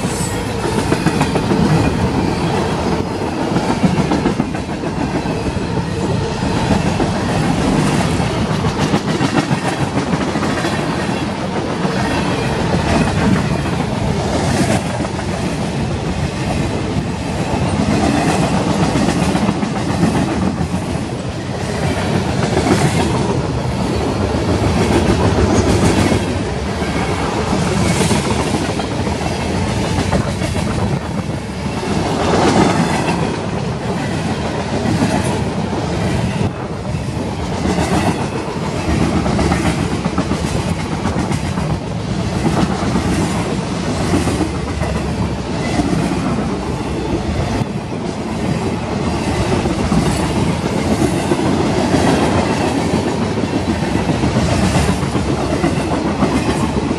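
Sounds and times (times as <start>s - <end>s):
steel wheels rolling on rail: 0.0s - 56.9s.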